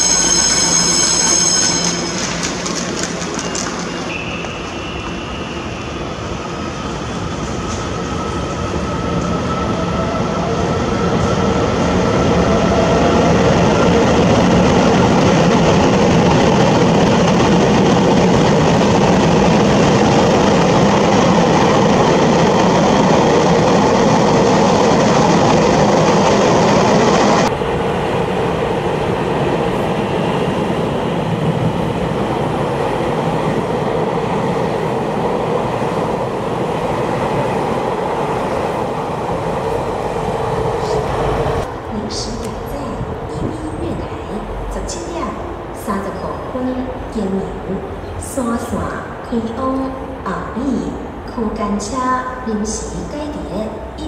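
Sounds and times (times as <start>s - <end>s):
wheels rushing on rail: 0.0s - 46.8s.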